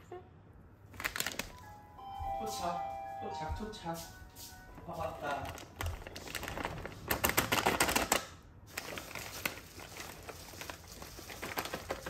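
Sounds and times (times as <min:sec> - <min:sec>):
plastic bag crinkling: 0:00.9 - 0:01.7, 0:05.0 - 0:12.0.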